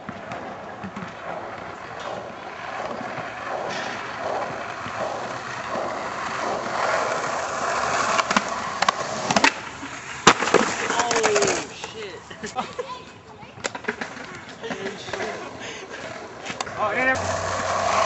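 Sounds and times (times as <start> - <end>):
skateboard tail clacks: 0.0 - 12.0, 16.0 - 18.0
skateboard wheels rolling on asphalt: 0.0 - 18.0
skateboard landing slap: 10.2 - 11.6.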